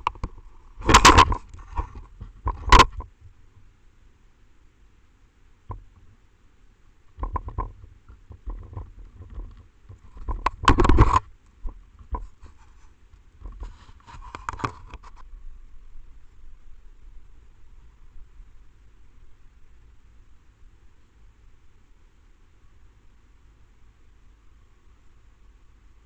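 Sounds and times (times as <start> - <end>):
animal knocking camera microphone: 0.0 - 3.1, 7.2 - 12.4
crackling rustle: 0.0 - 4.4, 5.6 - 26.0.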